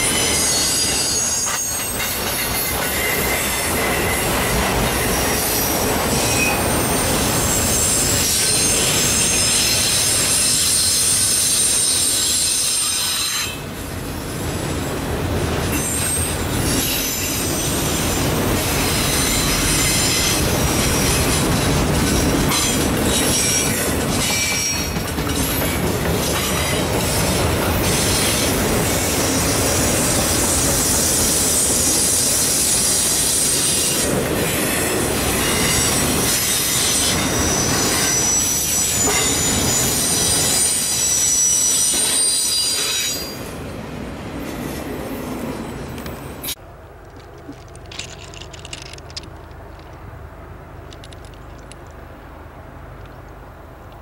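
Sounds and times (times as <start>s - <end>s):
high-pitched wheel squeal: 0.0s - 2.1s, 2.7s - 13.6s, 35.4s - 43.4s
train wheels rumbling on rail: 0.0s - 54.0s.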